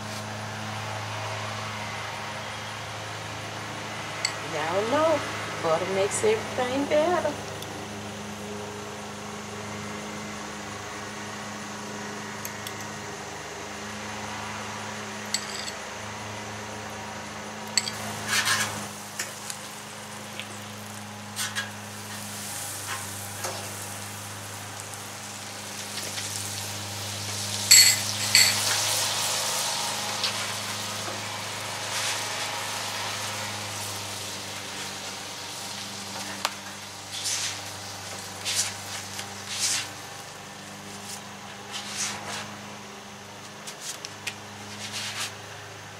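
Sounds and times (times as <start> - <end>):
pancakes sizzling on griddle: 7.8 - 42.8.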